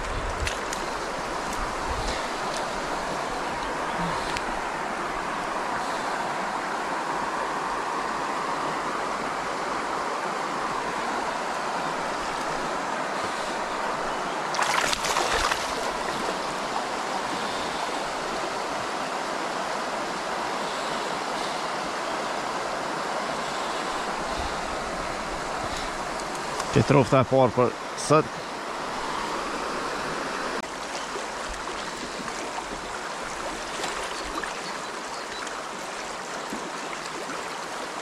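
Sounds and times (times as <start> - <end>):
river water over stones: 0.0 - 38.0
water splash: 14.5 - 16.3, 30.8 - 34.7.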